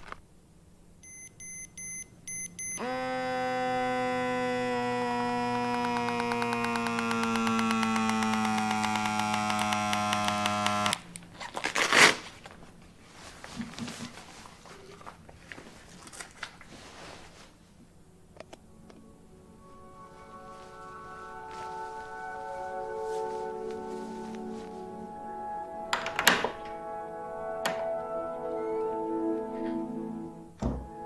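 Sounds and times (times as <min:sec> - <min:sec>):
velcro tearing: 0:04.7 - 0:12.5.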